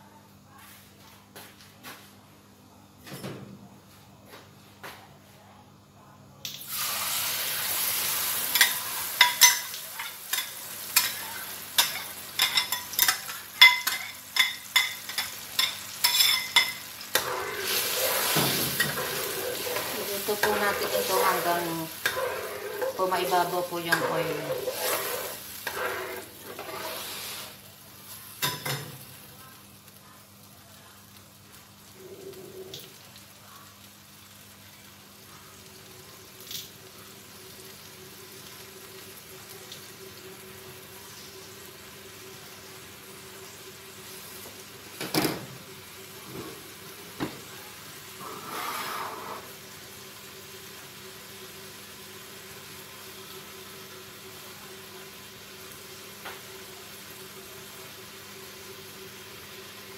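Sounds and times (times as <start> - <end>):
paste sizzling in oil: 6.7 - 29.5, 45.7 - 59.9.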